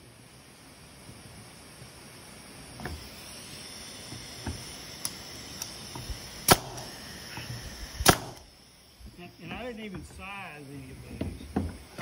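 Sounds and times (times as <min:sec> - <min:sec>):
nail gun firing into wood: 0:06.4 - 0:07.0, 0:08.0 - 0:08.5.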